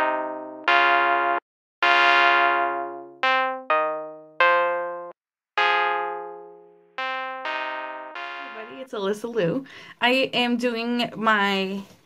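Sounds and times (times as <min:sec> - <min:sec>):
keyboard chords: 0:00.0 - 0:09.0.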